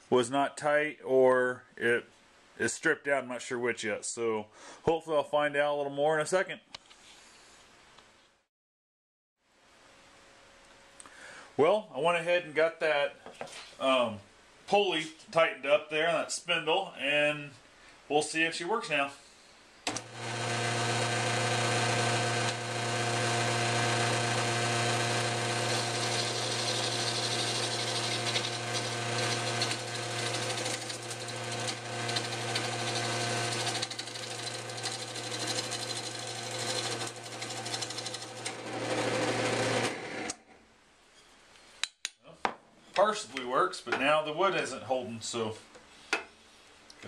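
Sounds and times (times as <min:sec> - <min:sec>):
rough noise of turning log: 0:19.9 - 0:40.4
wood lathe motor humming: 0:19.9 - 0:40.4.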